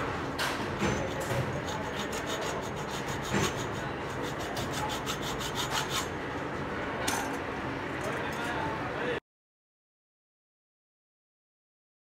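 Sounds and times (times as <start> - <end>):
hacksaw cutting metal: 0.8 - 6.2.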